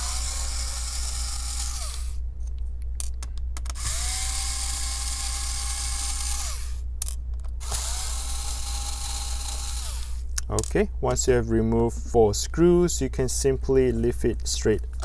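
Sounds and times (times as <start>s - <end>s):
electric screwdriver motor whine: 0.0s - 2.2s, 3.8s - 6.8s, 7.6s - 10.2s.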